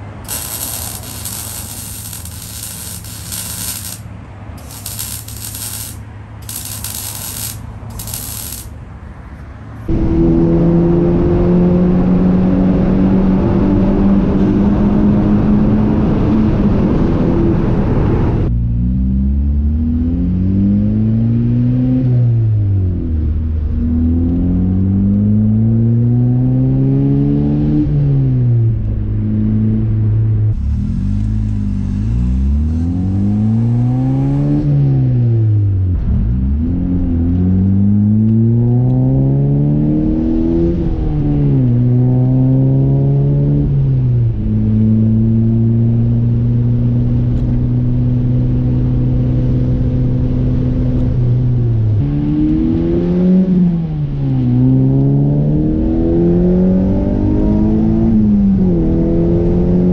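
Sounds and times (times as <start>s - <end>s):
car engine revving: 0.0s - 4.0s.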